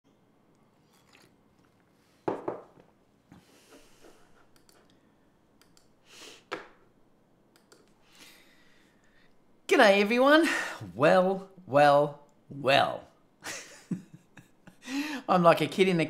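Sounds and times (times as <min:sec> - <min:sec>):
man sipping hot drink: 0:00.5 - 0:02.1
soft breaths: 0:03.3 - 0:06.6, 0:07.9 - 0:09.5.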